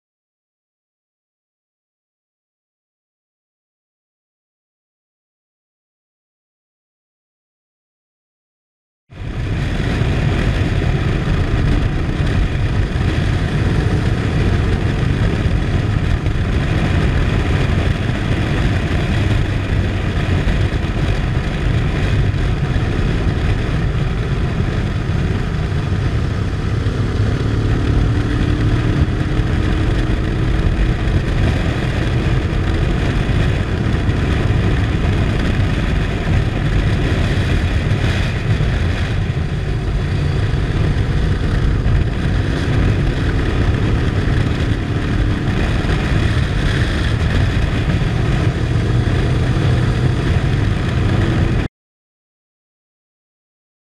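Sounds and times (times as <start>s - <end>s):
motorcycle engine running: 9.1s - 51.7s
wind rushing on microphone: 9.1s - 51.7s.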